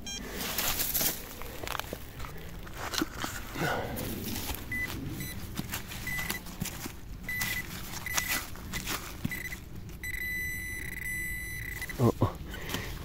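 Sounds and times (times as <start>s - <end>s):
metal detector beeping: 0.0s - 0.4s, 4.7s - 6.5s, 7.2s - 12.7s
digging in soil: 0.0s - 13.0s.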